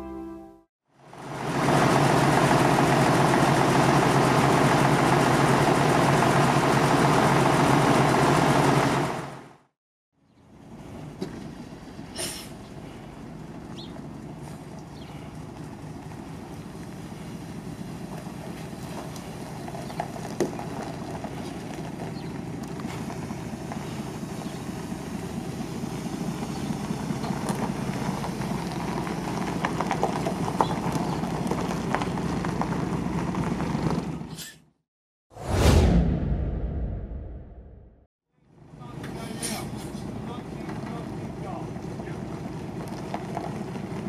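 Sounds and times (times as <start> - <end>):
bus diesel engine running: 0.0 - 9.7, 10.4 - 34.4, 38.6 - 44.0
tyres crunching on gravel: 12.9 - 34.2, 40.0 - 44.0.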